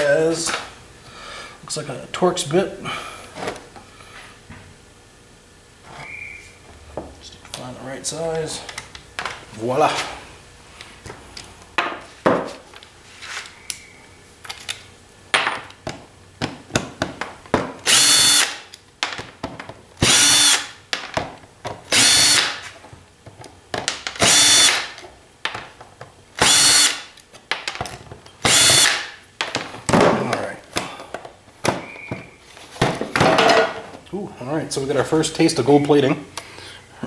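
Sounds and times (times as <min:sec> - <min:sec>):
drill-driver whirring: 0:17.8 - 0:18.6, 0:20.0 - 0:20.8, 0:21.9 - 0:22.6, 0:24.2 - 0:24.9, 0:26.4 - 0:27.1, 0:28.4 - 0:29.1.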